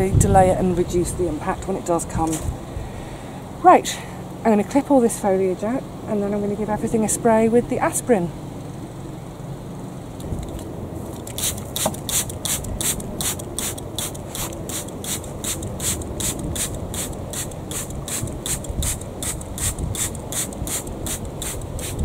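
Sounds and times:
spray bottle hissing: 11.3 - 22.0.

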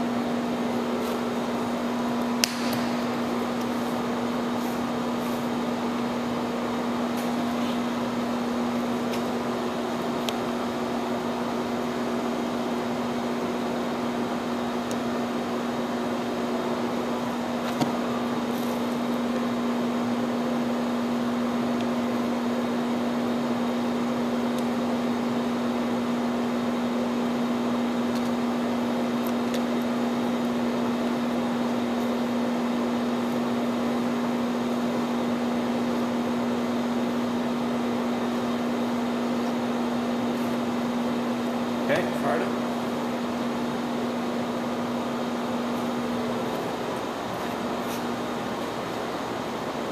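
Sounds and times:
machinery humming: 0.0 - 49.9
sharp click: 2.4 - 3.0.

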